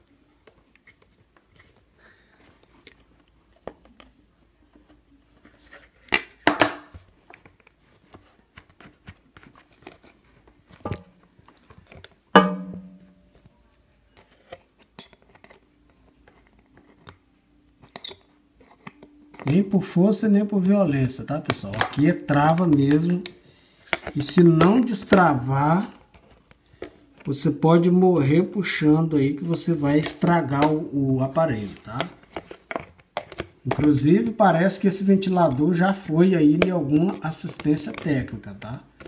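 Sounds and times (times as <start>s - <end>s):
clicks of handling plastic parts: 21.4s - 25.2s
plastic clattering: 31.6s - 34.4s.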